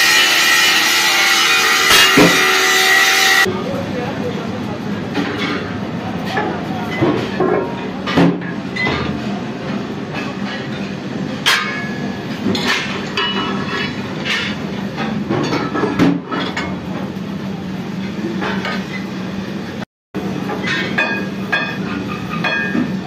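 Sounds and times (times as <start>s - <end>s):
lathe machinery humming: 0.0s - 3.5s.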